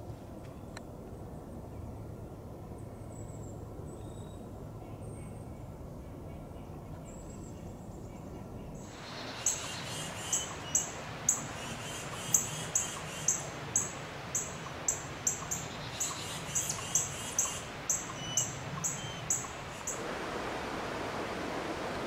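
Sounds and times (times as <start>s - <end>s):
faint bird twittering: 6.3s - 20.0s
bird chirping: 8.8s - 20.0s.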